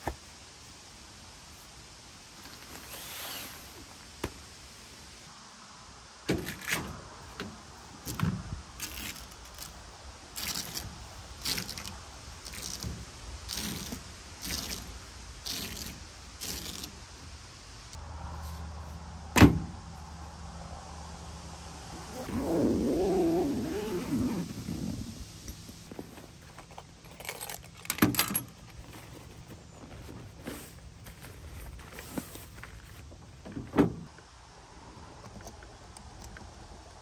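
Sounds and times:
bags scraping and rustling: 2.4s - 4.0s, 22.0s - 33.1s
low steady hum: 17.0s - 32.4s
bag thudding on metal tailgate: 19.4s - 19.8s.

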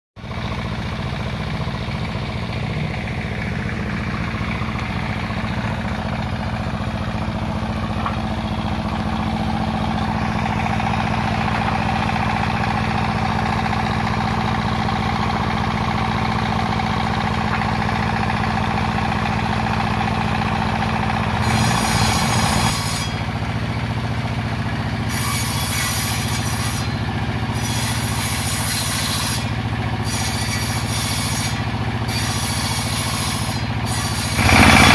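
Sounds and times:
circular saw bench droning: 0.2s - 34.9s
saw blade cutting wood: 21.3s - 23.4s, 25.0s - 34.9s.

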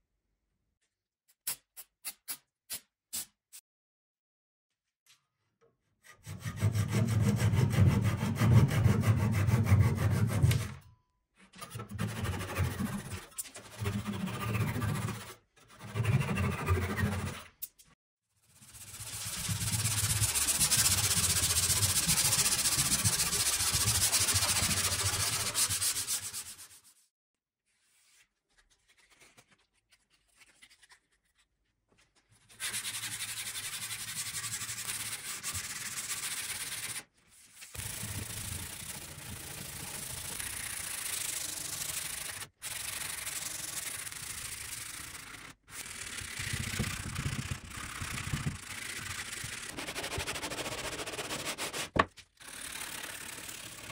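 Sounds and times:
sandpaper sanding wood: 6.2s - 10.7s, 11.9s - 17.4s, 18.6s - 27.0s, 32.5s - 37.0s, 37.7s - 53.9s.

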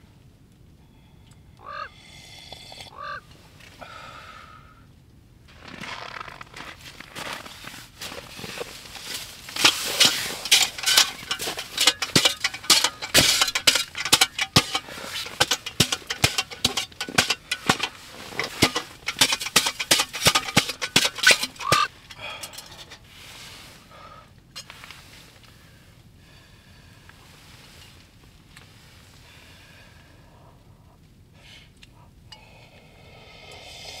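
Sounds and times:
snow shovel scraping snow: 5.6s - 21.9s.

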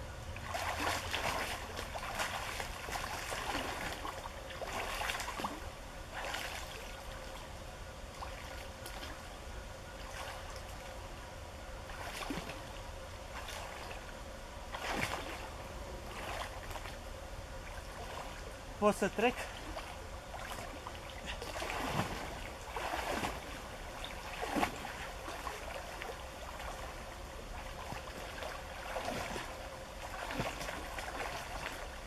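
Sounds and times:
water splashing from swimming: 0.4s - 7.4s, 11.9s - 14.1s, 14.7s - 17.0s, 17.6s - 18.4s, 19.0s - 32.0s.

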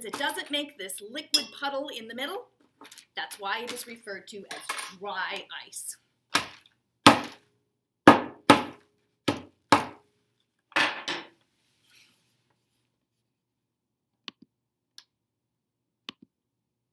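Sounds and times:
hammer striking dry ice in paper: 6.4s - 7.4s.

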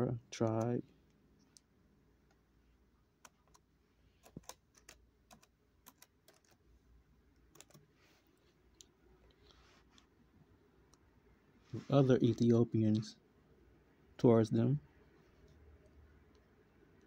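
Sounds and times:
typing on a computer keyboard: 4.2s - 6.6s, 7.4s - 7.9s.

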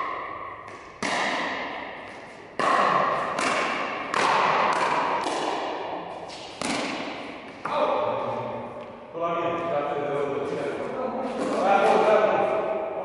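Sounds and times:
paddles hitting plastic ball: 0.0s - 7.8s.

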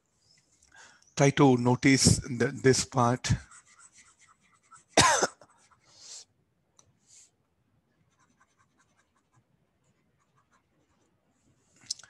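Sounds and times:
stylus scratching on pen tablet: 2.0s - 6.1s, 7.9s - 11.6s.

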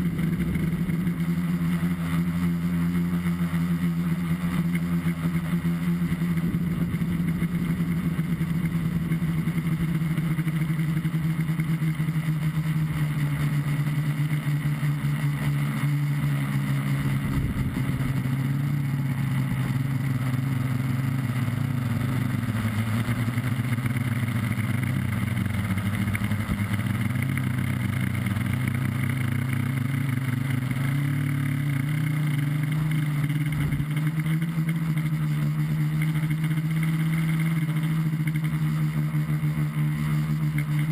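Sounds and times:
drone motors and propellers buzzing: 0.0s - 40.9s.

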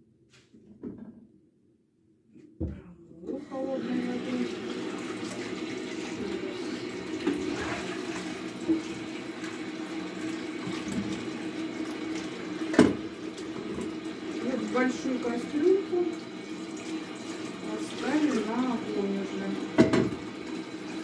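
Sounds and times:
tap running into sink: 7.1s - 9.6s, 10.2s - 14.9s, 19.6s - 20.6s.

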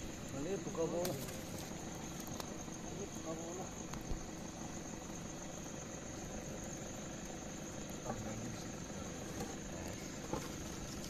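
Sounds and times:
crickets trilling: 0.0s - 11.0s
steady low rumble: 0.0s - 11.0s.

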